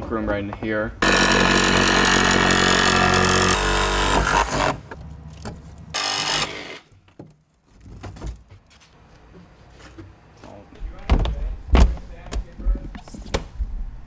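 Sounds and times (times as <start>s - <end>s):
power tool cutting panel: 1.0s - 4.8s, 6.0s - 6.8s.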